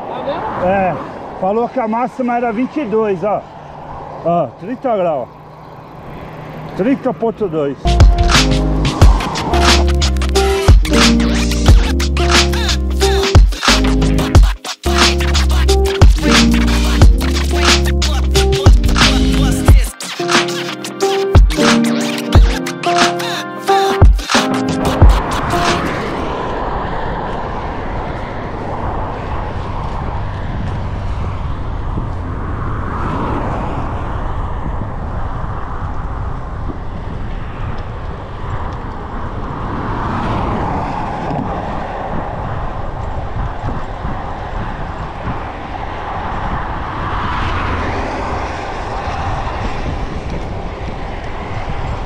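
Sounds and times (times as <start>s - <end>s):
bicycle road noise: 0.0s - 13.2s, 24.8s - 52.0s
passing motor traffic: 0.0s - 52.0s
wind on microphone: 8.0s - 11.1s, 24.8s - 52.0s.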